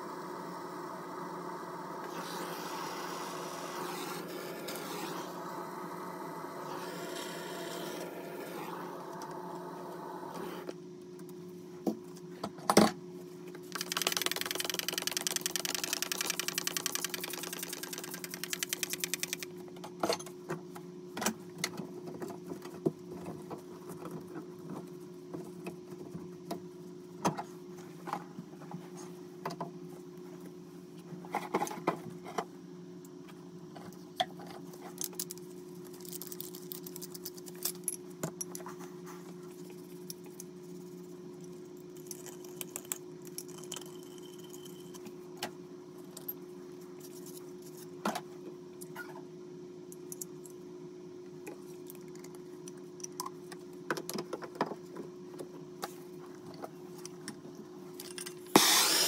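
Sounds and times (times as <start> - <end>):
steady hum: 0.0 - 12.4, 13.1 - 20.0, 58.4 - 59.0
small power tool buzzing: 58.5 - 59.0.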